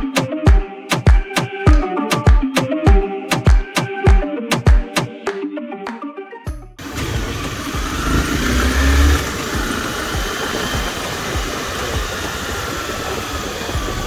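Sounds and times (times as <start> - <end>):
motorcycle engine running: 6.8 - 14.0
road and wind noise: 6.8 - 14.0.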